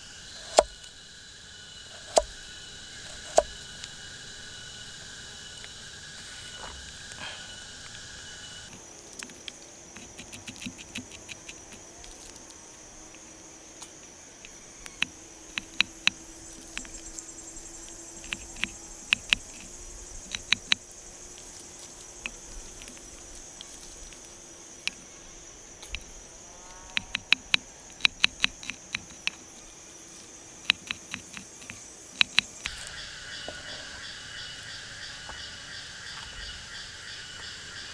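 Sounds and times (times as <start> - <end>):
insects buzzing: 0.0 - 37.9
knife chopping on wood: 2.0 - 2.3.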